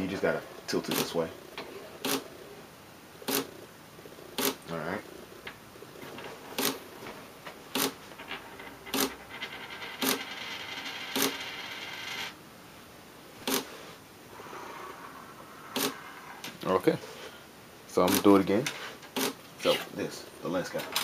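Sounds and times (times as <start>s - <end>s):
camera shutter clicking: 2.0s - 2.2s, 3.3s - 3.5s
spinning coin whirring and rattling: 7.8s - 12.4s.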